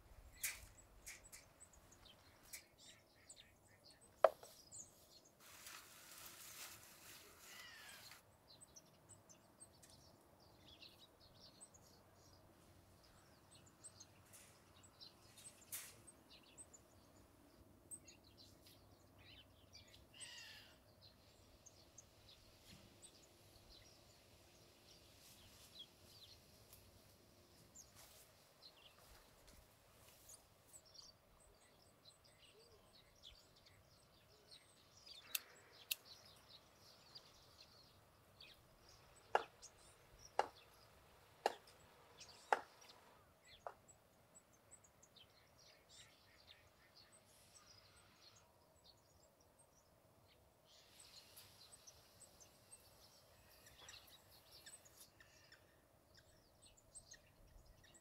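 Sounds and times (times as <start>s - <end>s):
faint bird chirps: 0.0s - 12.4s, 13.0s - 29.3s, 30.2s - 41.0s, 41.6s - 58.0s
faint clicks: 35.1s - 36.5s.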